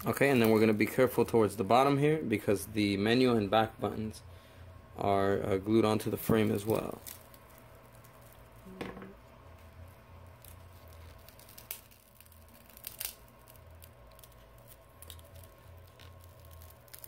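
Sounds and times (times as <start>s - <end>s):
adhesive and glass crackling: 6.4s - 8.5s, 10.4s - 17.0s.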